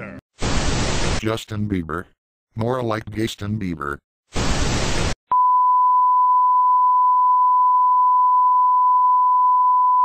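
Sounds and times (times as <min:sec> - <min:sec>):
steady test tone beep: 0:05.3 - 0:10.0.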